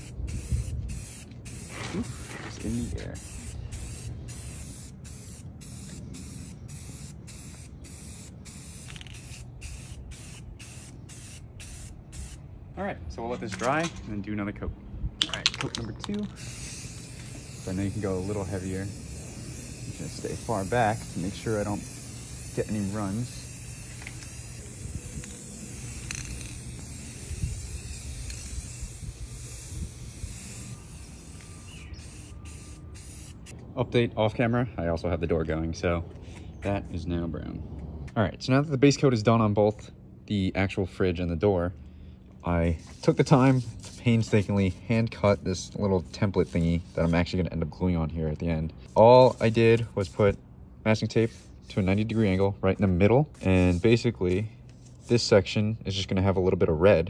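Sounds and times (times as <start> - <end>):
spray paint can hissing: 0.0 - 12.4, 16.3 - 33.5, 42.7 - 47.3, 48.8 - 50.4, 51.2 - 52.4, 53.3 - 55.3.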